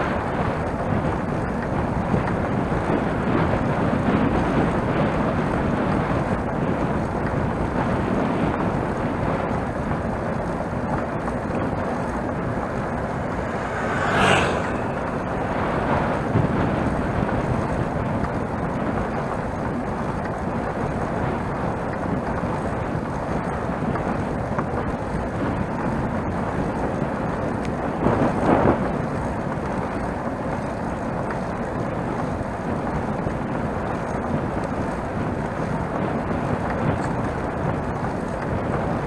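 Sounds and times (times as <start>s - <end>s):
bicycle tyre and road noise: 0.0s - 39.0s
wind rushing over microphone: 0.0s - 39.0s
loud whoosh: 11.7s - 16.8s.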